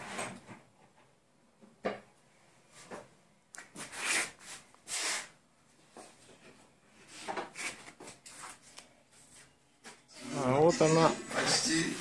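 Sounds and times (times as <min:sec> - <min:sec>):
rubbing and scraping: 0:03.7 - 0:05.3, 0:07.0 - 0:12.0.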